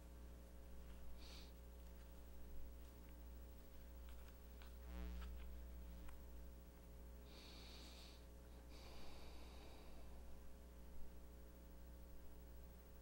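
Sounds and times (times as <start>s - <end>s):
low hum: 0.0s - 13.0s
soft breathy hisses: 1.1s - 1.6s, 7.2s - 10.4s.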